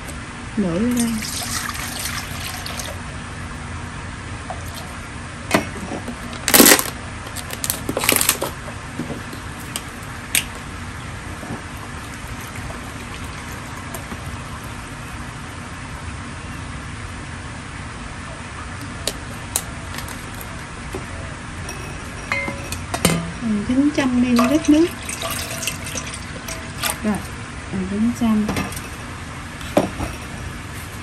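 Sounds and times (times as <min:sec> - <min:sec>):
steady background hum: 0:00.0 - 0:31.0
water pouring into metal bowl: 0:01.2 - 0:03.0, 0:24.4 - 0:27.1.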